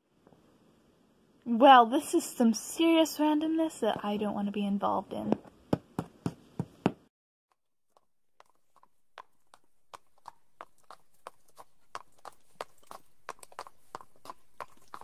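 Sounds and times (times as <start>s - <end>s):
horse hooves clip-clopping: 7.9s - 15.0s.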